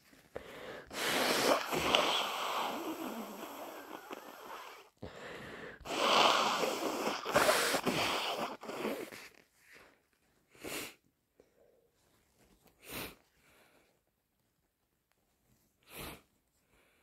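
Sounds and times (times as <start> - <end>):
person blowing nose: 0.4 - 9.4, 15.9 - 16.3.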